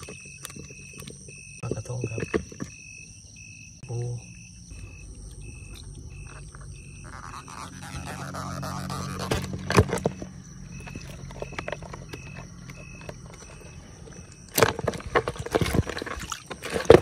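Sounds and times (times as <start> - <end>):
sharp knocks and rustles: 6.2 - 17.0.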